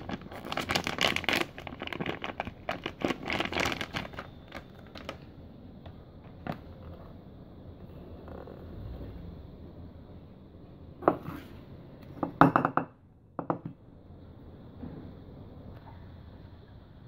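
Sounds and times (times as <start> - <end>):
foil pouch crinkling: 0.0 - 5.3.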